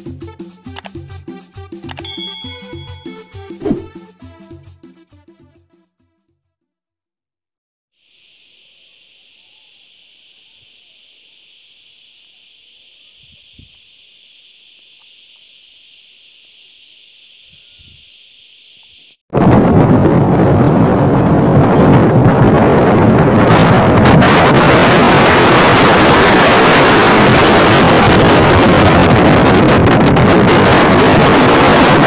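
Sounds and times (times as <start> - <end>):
faint high hiss: 8.0 - 19.2
wind buffeting on microphone: 19.4 - 32.0.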